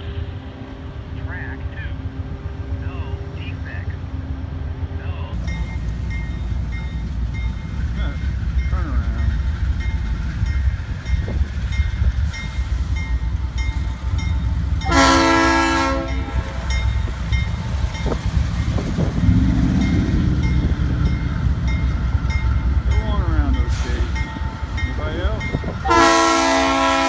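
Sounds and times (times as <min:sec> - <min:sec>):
low locomotive rumble: 0:00.0 - 0:27.0
crossing warning bell dinging: 0:05.3 - 0:27.0
locomotive air horn: 0:14.8 - 0:16.7, 0:25.8 - 0:27.0.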